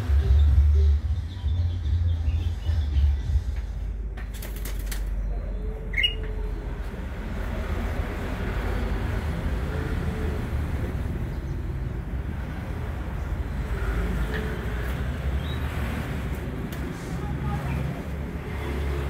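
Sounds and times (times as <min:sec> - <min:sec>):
bird chirp: 0:00.0 - 0:03.8, 0:05.0 - 0:06.8, 0:15.3 - 0:15.8.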